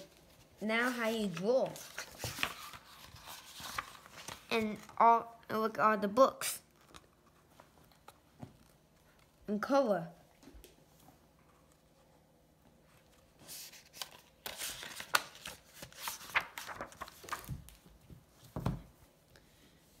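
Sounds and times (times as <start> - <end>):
book pages turning: 0.0 - 5.0, 6.7 - 9.4, 12.8 - 18.8
soft thumps of book: 17.4 - 19.0.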